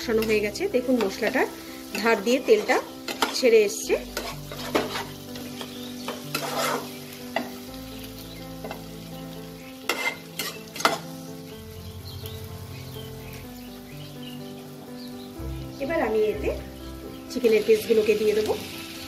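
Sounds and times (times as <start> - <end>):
paste sizzling in oil: 0.0 - 19.0
spatula scraping a pan: 1.9 - 7.6, 9.8 - 11.1.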